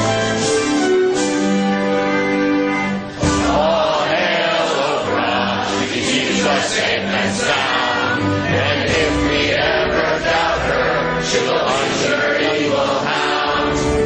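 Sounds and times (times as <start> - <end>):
group of voices singing a chant: 3.2 - 14.0.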